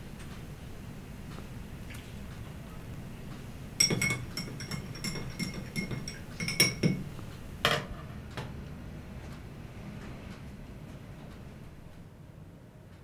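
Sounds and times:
spoon clinking in a glass: 3.8 - 7.0.

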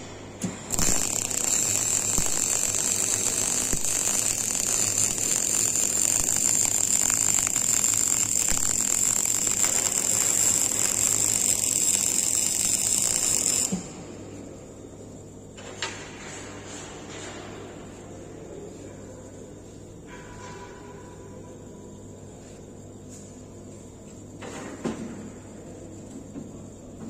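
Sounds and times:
welding arc strike: 0.0 - 14.0
welding arc crackling hiss: 0.0 - 14.5.

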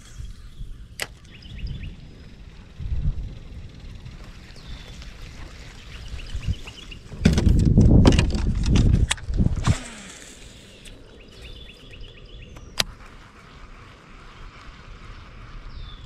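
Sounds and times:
sharp click: 1.0 - 1.4
fishing gear rattling against kayak: 2.4 - 10.1.

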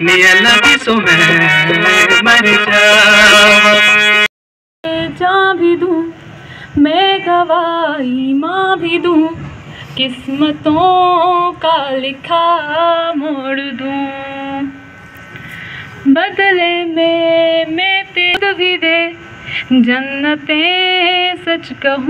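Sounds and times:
woman singing: 4.8 - 9.4, 10.0 - 14.8, 16.0 - 22.0.

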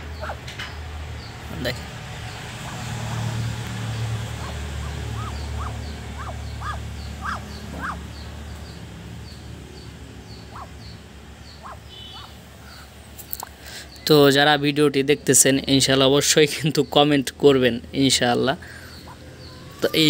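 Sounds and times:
duck calling: 0.2 - 0.4, 2.6 - 8.2, 10.5 - 10.7, 11.6 - 12.9.

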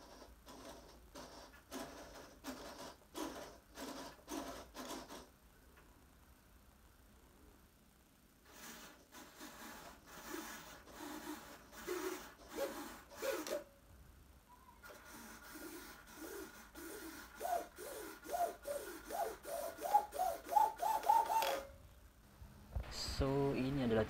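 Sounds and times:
servos whirring in bursts: 8.5 - 13.6, 14.8 - 21.4.

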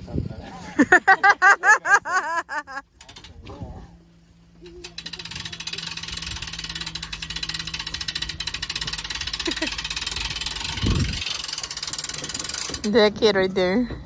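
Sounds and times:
low steady hum: 0.0 - 14.0
winch ratcheting clicks: 2.9 - 3.6, 4.6 - 13.1.

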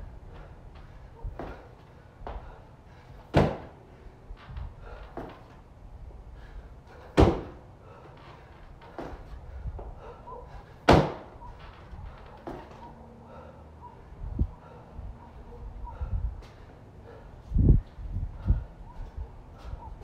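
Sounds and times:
feet landing on wooden box: 0.8 - 2.5, 3.2 - 3.8, 4.5 - 5.6, 7.0 - 7.6, 8.2 - 9.9, 10.8 - 12.8.

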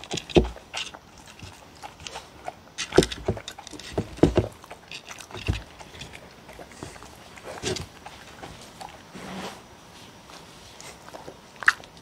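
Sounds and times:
dogs chewing from a bowl: 0.0 - 9.1.

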